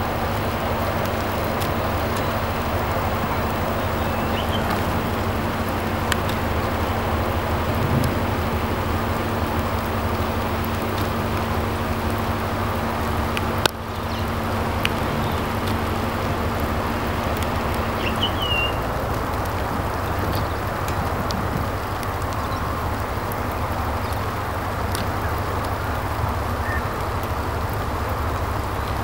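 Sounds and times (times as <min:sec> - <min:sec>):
wind rushing on microphone: 0:00.0 - 0:13.6, 0:14.2 - 0:23.6
low steady hum: 0:00.0 - 0:29.0
small bird chirping: 0:03.3 - 0:05.2, 0:18.0 - 0:18.8.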